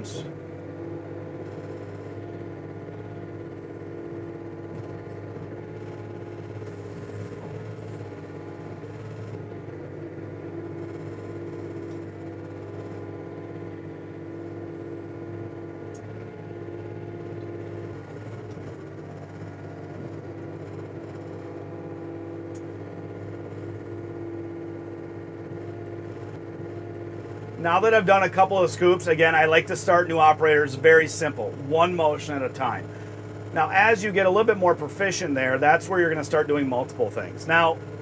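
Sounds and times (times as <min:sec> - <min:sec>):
excavator engine and hydraulics droning: 0:00.0 - 0:38.0.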